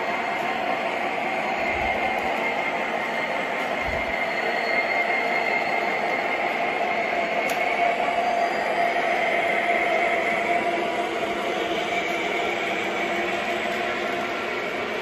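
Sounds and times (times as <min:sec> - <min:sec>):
model train rolling on rails: 0:00.0 - 0:15.0.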